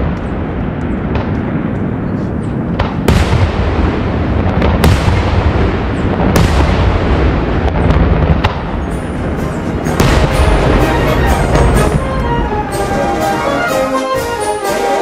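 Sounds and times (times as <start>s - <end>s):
loud firework bangs: 0.0s - 12.2s
fireworks rumble and crackle: 0.0s - 14.7s.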